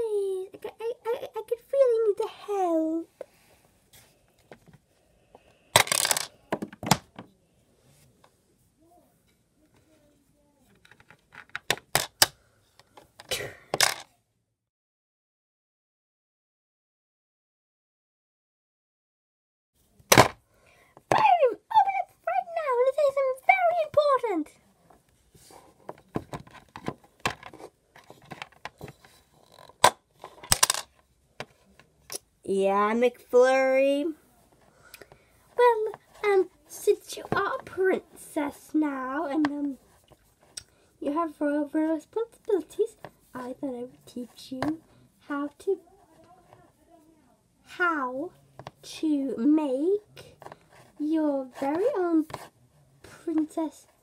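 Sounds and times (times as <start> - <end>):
plastic toy pieces handled: 5.8 - 7.3, 10.7 - 14.1, 25.4 - 32.2.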